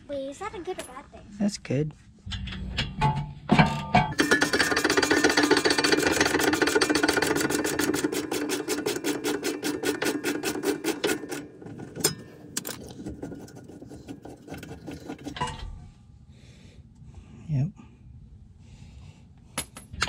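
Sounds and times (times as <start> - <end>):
air tool rattling: 3.6 - 15.6.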